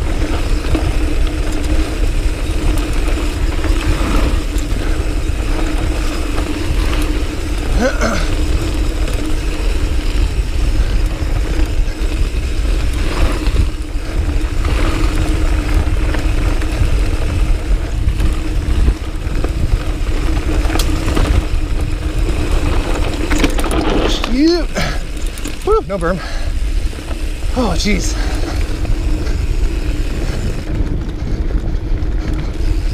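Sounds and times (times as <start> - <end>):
steady hum: 0.0 - 30.7
bike knocking and rattling: 0.0 - 32.9
wind rumbling on microphone: 0.0 - 32.9.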